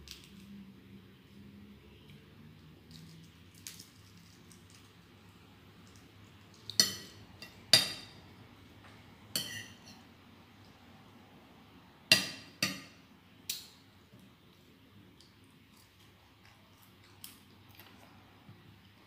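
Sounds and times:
metal fork clinking on plate: 9.4s - 10.0s.

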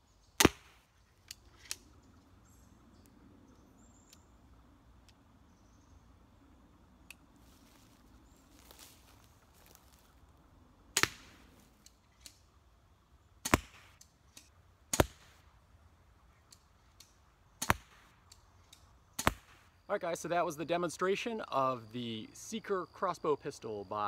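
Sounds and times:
crossbow shots: 0.4s - 0.9s, 10.9s - 11.5s, 13.4s - 14.0s, 14.9s - 15.4s, 17.6s - 18.2s, 19.2s - 19.7s
bolts striking target bag: 17.6s - 18.1s.

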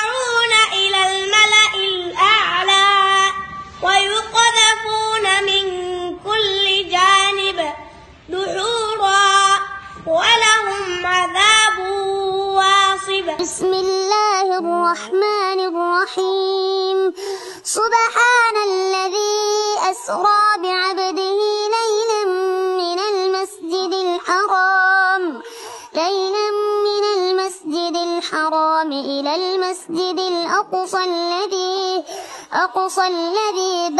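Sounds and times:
low background rumble: 0.0s - 17.1s.

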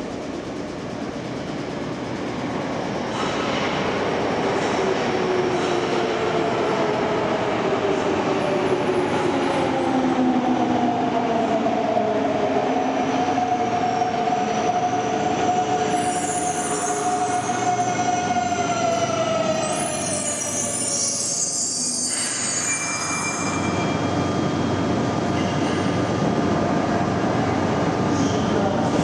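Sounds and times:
train wheels rumbling on track: 0.0s - 20.9s, 22.0s - 29.0s
high brake squeal: 15.7s - 17.9s, 19.6s - 24.6s.

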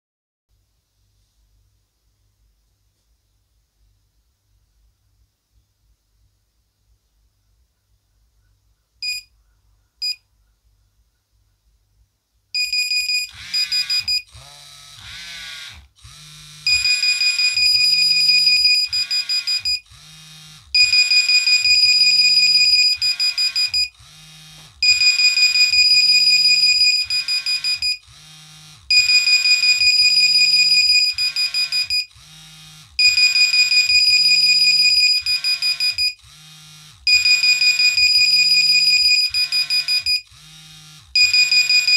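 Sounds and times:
phone alarms pulsing beeps: 9.0s - 9.3s, 12.6s - 14.3s, 16.7s - 19.8s, 20.8s - 24.0s, 24.8s - 28.0s, 28.9s - 32.1s, 33.0s - 36.2s, 37.1s - 40.3s, 41.2s - 41.9s
short beeps: 9.0s - 9.3s, 12.6s - 14.3s, 37.1s - 40.2s.

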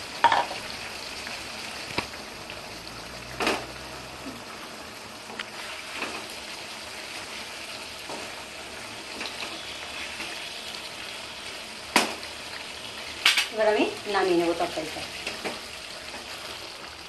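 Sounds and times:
curry simmering and sizzling: 0.0s - 17.0s
spatula knocking on pan: 0.2s - 0.6s.

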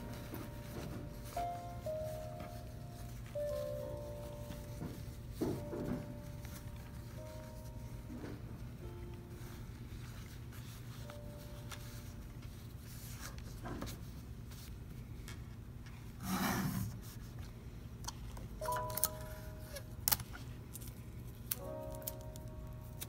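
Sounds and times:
soft background music: 0.0s - 15.2s, 17.9s - 23.0s
paper handling and clicks: 17.4s - 23.0s.

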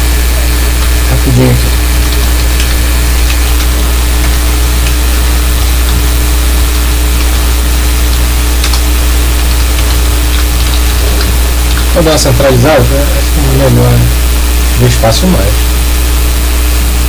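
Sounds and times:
low hum with hiss: 0.0s - 17.0s.

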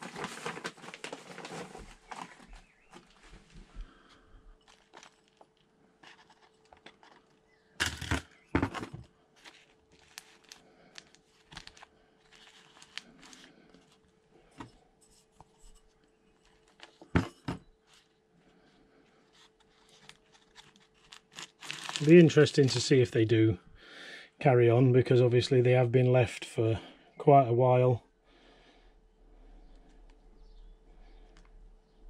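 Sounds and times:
soil rustling: 4.6s - 7.5s, 8.4s - 14.7s, 19.2s - 23.0s
plastic tray crackling: 19.7s - 22.8s.

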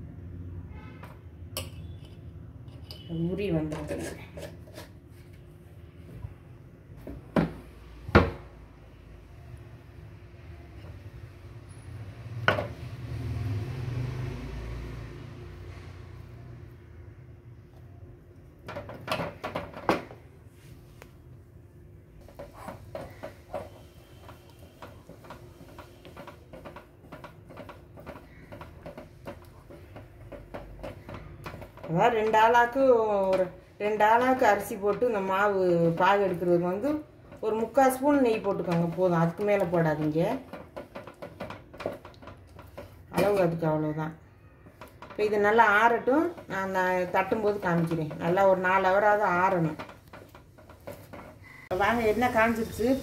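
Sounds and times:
utensils knocking on steel pot: 18.6s - 20.2s, 22.2s - 53.0s.

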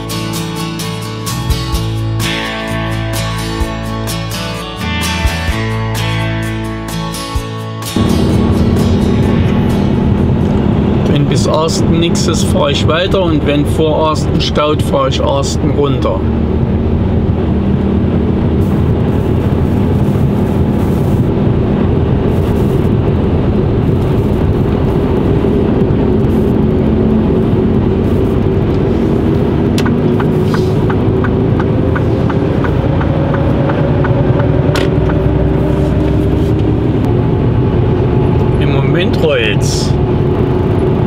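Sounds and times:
truck diesel engine running: 0.0s - 41.0s
turn-signal relay ticking: 29.8s - 35.2s.

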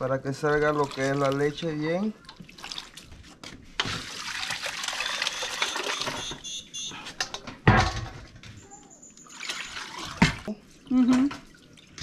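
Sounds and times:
liquid splashing and pouring: 0.5s - 6.3s, 9.3s - 12.0s.

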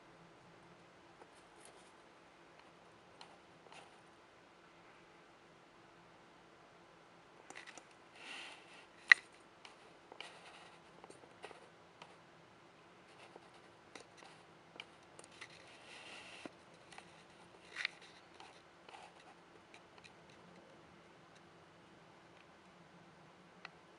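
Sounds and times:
faint low hum: 0.0s - 23.9s.

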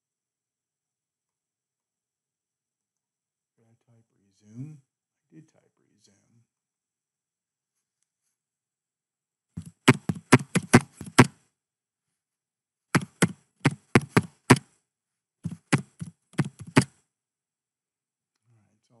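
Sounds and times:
keyboard keys clacking: 9.6s - 11.3s, 13.0s - 14.6s, 15.5s - 16.9s.

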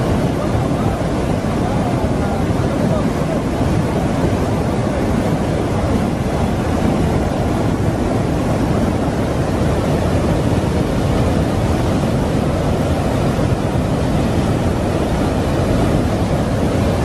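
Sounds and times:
floodwater torrent rushing: 0.0s - 17.0s.

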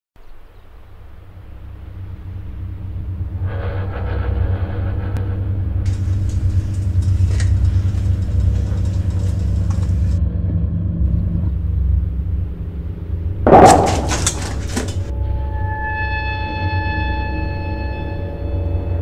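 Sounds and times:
low rumbling drone: 0.4s - 19.0s
loud sudden noisy hit: 13.5s - 15.0s.

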